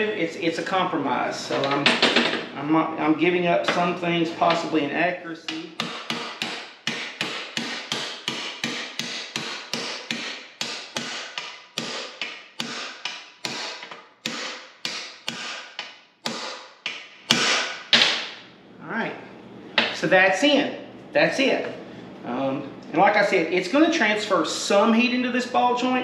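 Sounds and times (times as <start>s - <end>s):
hammer blows ringing on metal: 5.8s - 15.5s.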